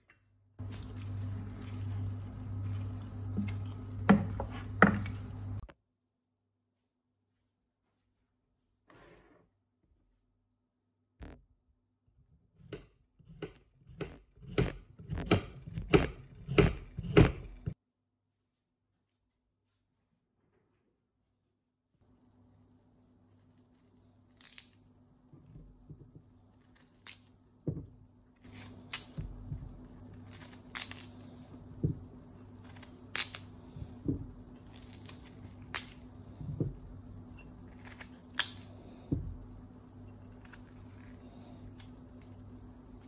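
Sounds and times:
steady low hum: 0.4 - 5.7, 22.0 - 43.0.

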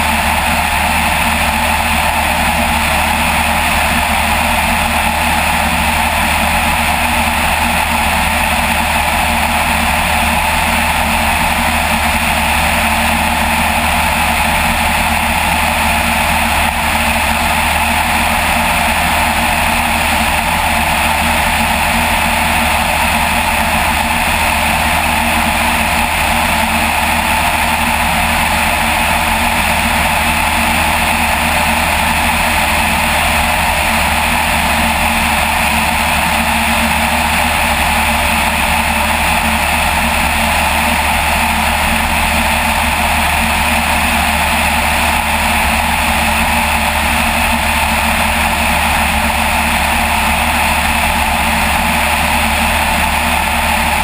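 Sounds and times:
aircraft engine drone: 0.0 - 54.0.

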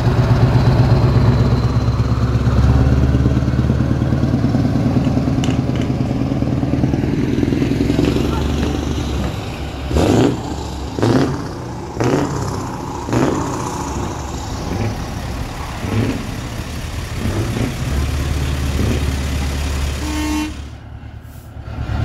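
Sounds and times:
diesel truck engines rumbling: 0.0 - 22.0
truck horn blasts: 19.9 - 20.8.

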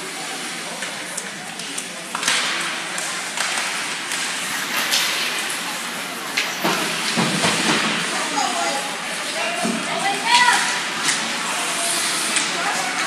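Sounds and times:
skate blades scraping ice: 2.1 - 9.3.

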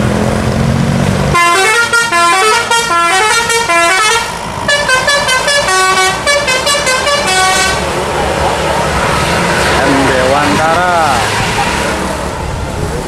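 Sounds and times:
musical air horn tune: 1.4 - 7.8.

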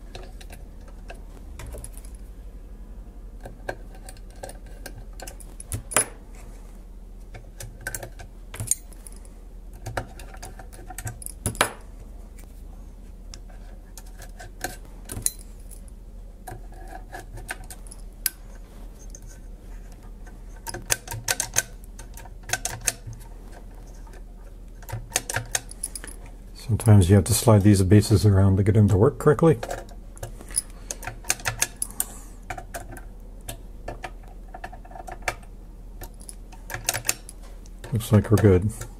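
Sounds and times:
metal parts clicking and tapping: 0.1 - 2.2, 3.4 - 6.2, 7.3 - 11.8, 13.3 - 18.4, 20.6 - 24.2, 24.8 - 26.2, 29.5 - 38.9.

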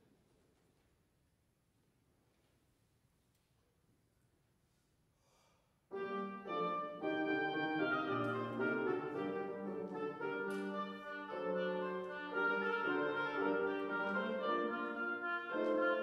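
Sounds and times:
piano accompaniment: 5.9 - 16.0
oboe: 6.0 - 16.0.

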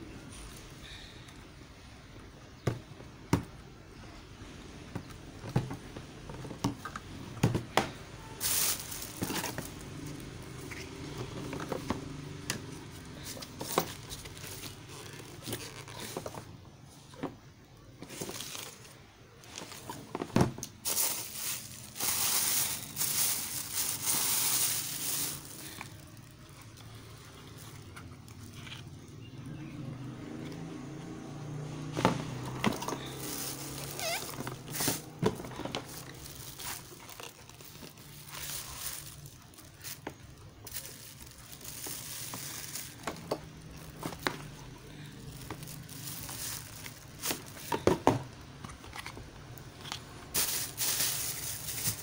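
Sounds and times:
plastic packaging crinkling: 8.2 - 16.6, 18.0 - 29.1, 32.4 - 48.0, 48.6 - 52.0.

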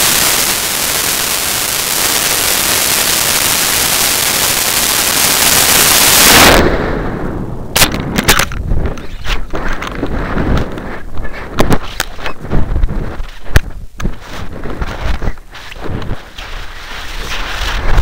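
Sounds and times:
rocket motor roar: 0.0 - 6.7.

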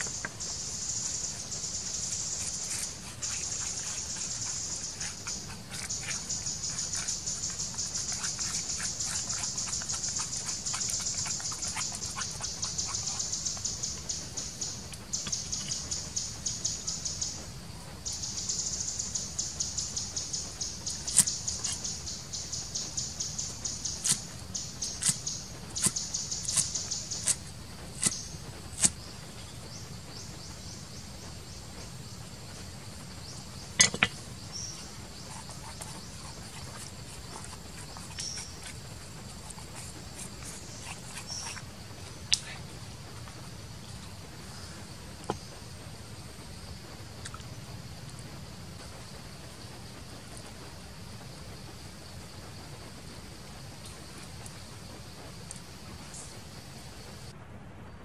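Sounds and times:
stick stirring paste in bowl: 0.0 - 16.1, 33.8 - 44.5.

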